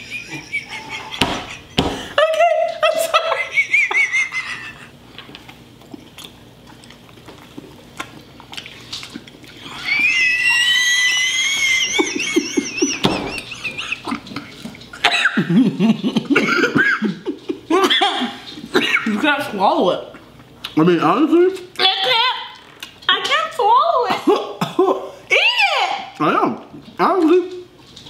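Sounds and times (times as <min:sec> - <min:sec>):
person whining in disgust: 0:09.6 - 0:12.2.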